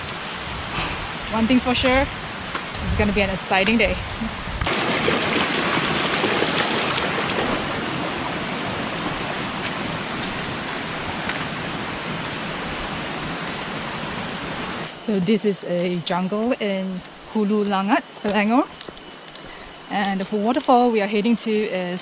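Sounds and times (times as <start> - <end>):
stream water rushing: 4.6 - 15.0.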